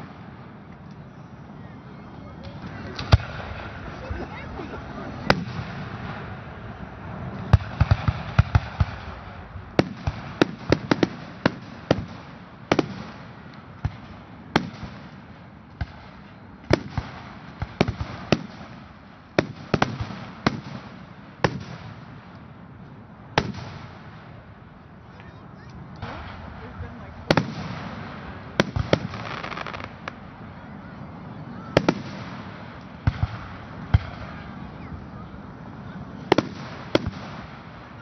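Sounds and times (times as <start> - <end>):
firework shells bursting: 27.2 - 30.3.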